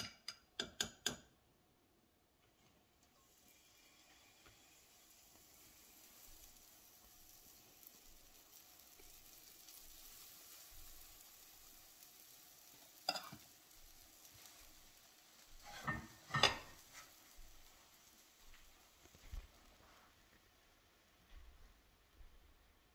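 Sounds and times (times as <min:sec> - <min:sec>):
batter sizzling in a pan: 0:02.6 - 0:22.9
ladle and pan knocking: 0:15.6 - 0:16.8.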